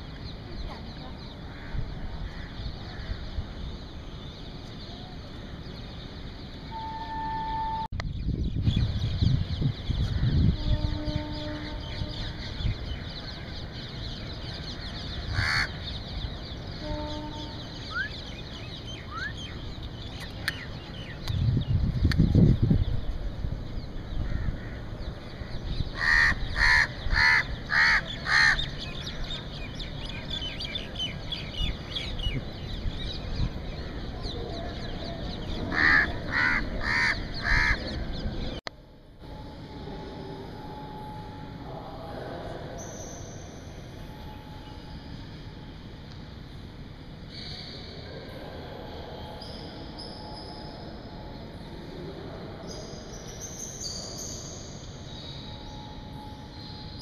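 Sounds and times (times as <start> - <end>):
crow cawing: 15.3 - 15.7, 26.0 - 28.7, 35.7 - 37.8.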